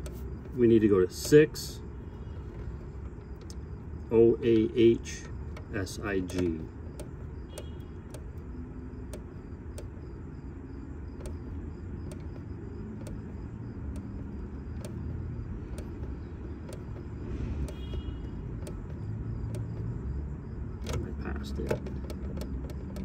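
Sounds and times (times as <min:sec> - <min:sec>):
keypad button clicks: 0:04.5 - 0:10.0, 0:11.2 - 0:19.9.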